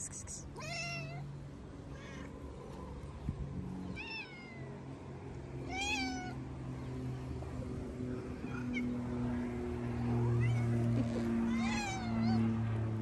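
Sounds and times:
cat meowing: 0:00.5 - 0:01.2, 0:05.6 - 0:06.4, 0:11.4 - 0:12.5.

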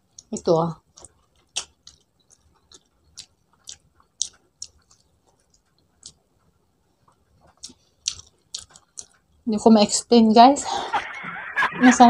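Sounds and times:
person chewing food: 0:00.0 - 0:09.5.

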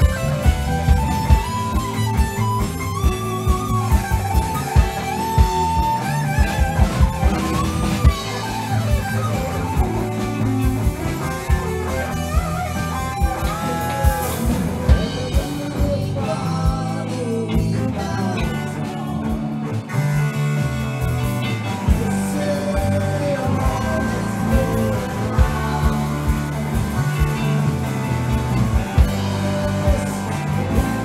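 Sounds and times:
electric guitar: 0:00.0 - 0:31.0
rock band playing: 0:00.0 - 0:31.0.

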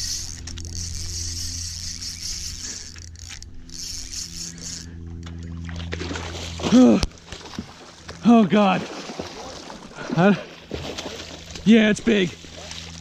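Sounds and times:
fishing reel drag buzzing: 0:00.0 - 0:06.6
low hum: 0:00.0 - 0:13.0.

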